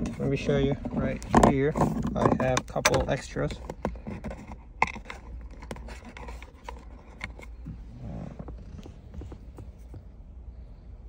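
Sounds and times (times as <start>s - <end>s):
handling clicks and rustles: 0.0s - 10.7s
steady low hum: 0.0s - 11.0s.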